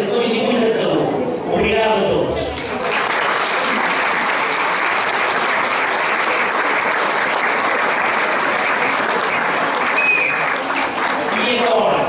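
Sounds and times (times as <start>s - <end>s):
crowd applauding: 2.6s - 12.0s.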